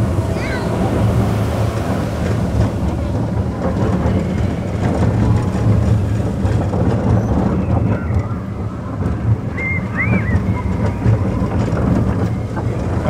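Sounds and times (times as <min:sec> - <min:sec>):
faint track clacks: 0:00.0 - 0:13.0
roller coaster wheels rumbling: 0:00.0 - 0:13.0.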